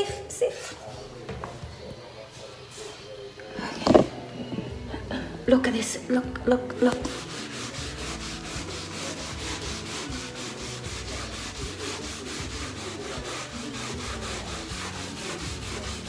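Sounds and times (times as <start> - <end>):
wet cloth scrubbing a wall: 6.8 - 16.0.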